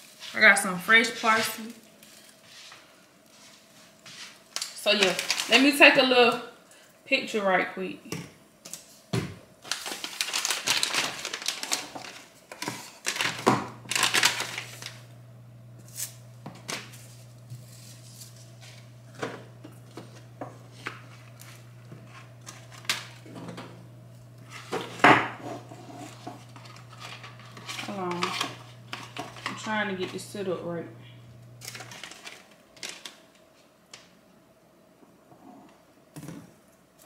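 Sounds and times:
plastic packaging crinkling: 0:04.4 - 0:05.9, 0:09.6 - 0:15.1, 0:19.8 - 0:23.2, 0:26.0 - 0:29.9, 0:31.6 - 0:33.7
low steady hum: 0:13.6 - 0:32.1.

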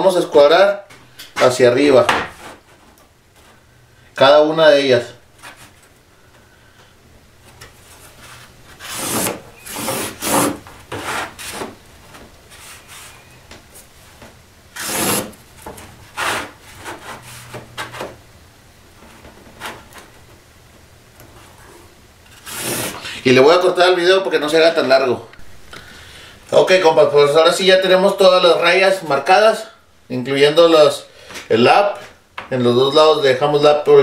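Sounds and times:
marker scratching lines: 0:14.8 - 0:15.4, 0:22.3 - 0:23.0.

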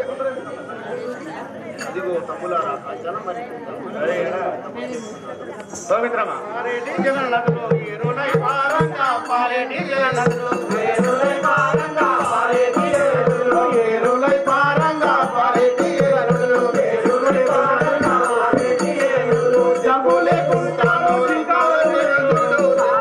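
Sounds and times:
drum and percussion: 0:04.9 - 0:23.0.

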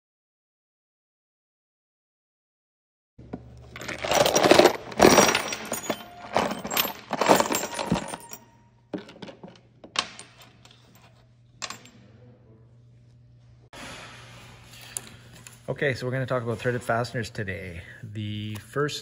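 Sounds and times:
metal pieces clinking: 0:03.6 - 0:12.0
metal bolts clattering onto table: 0:03.7 - 0:12.0.

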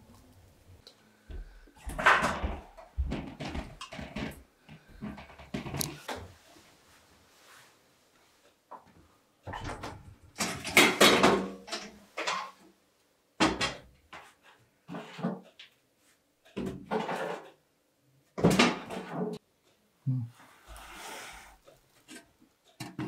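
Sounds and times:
knocks and clatter: 0:01.8 - 0:06.1.

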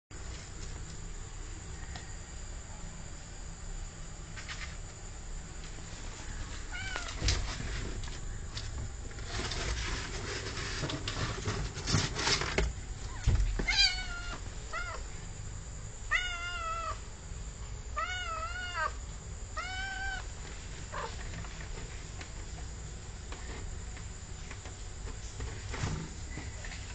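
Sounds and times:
rustling: 0:05.6 - 0:15.0, 0:19.6 - 0:26.9
cat meowing: 0:13.1 - 0:15.0, 0:16.1 - 0:17.0, 0:18.0 - 0:19.0, 0:19.6 - 0:20.3.

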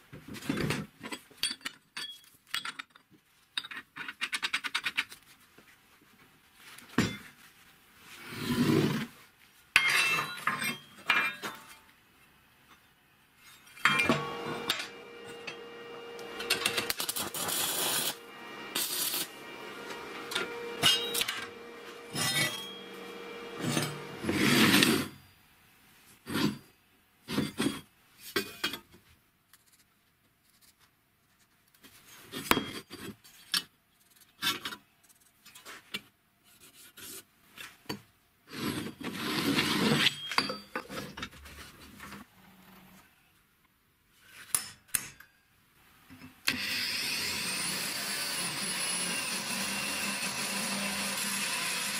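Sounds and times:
metal rasping on metal: 0:16.4 - 0:25.2.

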